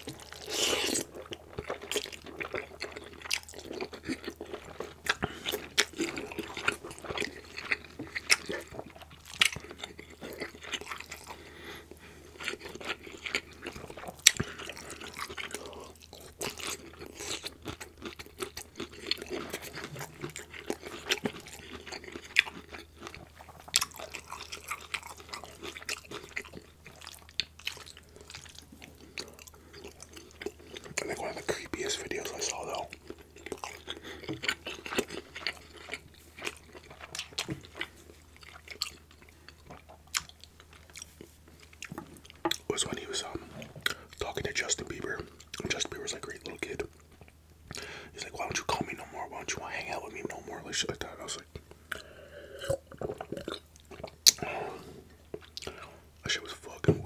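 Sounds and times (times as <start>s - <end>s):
close chewing and mouth sounds: 0.0s - 57.0s.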